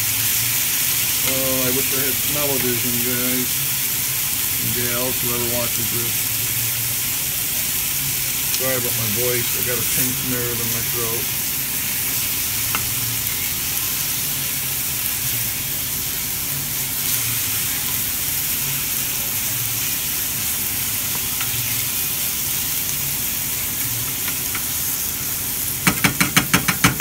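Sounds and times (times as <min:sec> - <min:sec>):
meat and vegetables sizzling: 0:00.0 - 0:27.0
wooden spoon knocking pan: 0:25.8 - 0:27.0.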